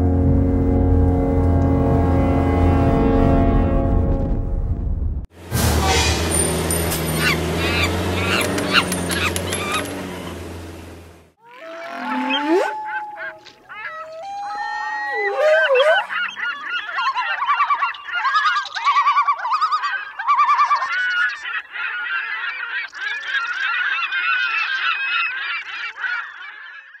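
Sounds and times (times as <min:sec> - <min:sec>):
gulls squawking: 0:06.6 - 0:27.0.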